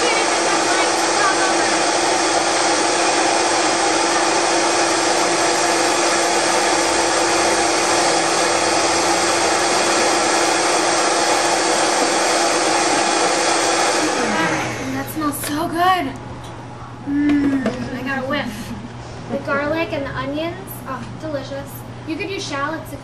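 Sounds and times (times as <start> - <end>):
blender motor humming: 0.0 - 15.5.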